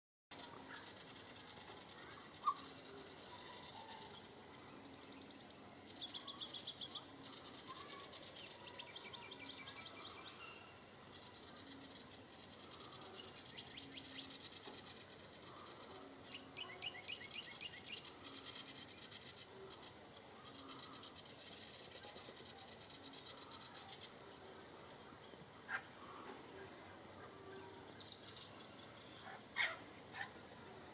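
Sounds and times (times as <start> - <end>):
bird scolding chatter: 0.4 - 4.3, 25.6 - 26.4, 29.2 - 30.4.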